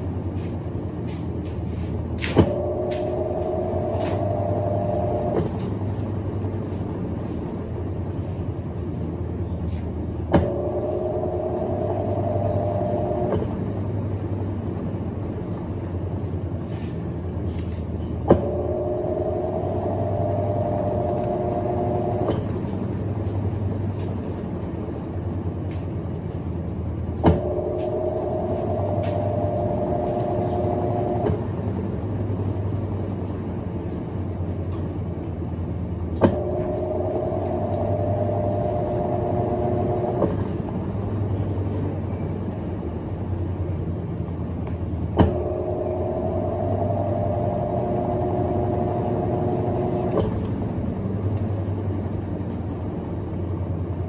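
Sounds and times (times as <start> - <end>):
steady low hum: 0.0 - 54.0
washing machine motor whine: 0.0 - 54.0.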